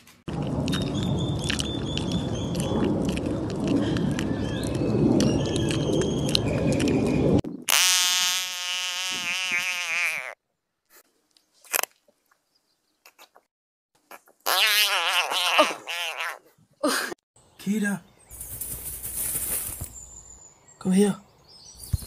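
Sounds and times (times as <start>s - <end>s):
rough rustling: 18.3s - 20.2s.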